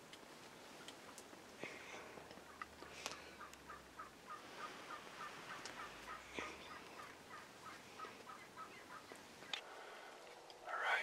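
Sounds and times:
turkey yelps: 3.4 - 9.6.

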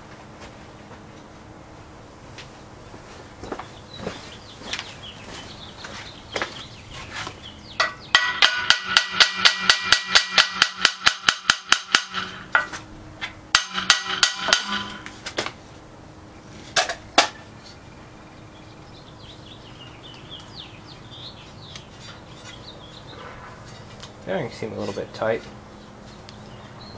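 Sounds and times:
hammer tapping on metal: 7.8 - 12.8, 13.5 - 15.1.

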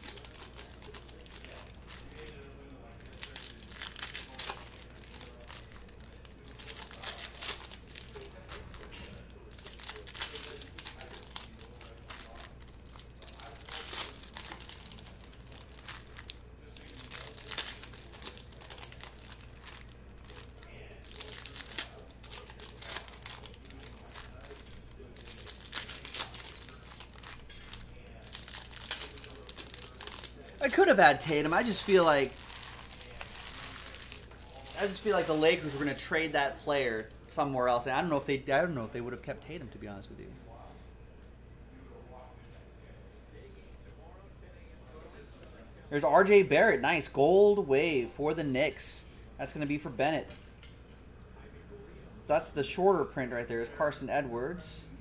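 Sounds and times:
wrappers crinkling and tearing: 0.0 - 36.4.

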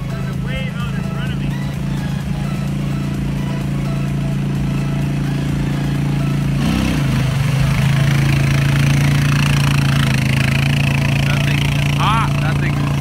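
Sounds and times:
quad bike engine running: 0.0 - 13.0
water rushing and splashing: 4.8 - 13.0.

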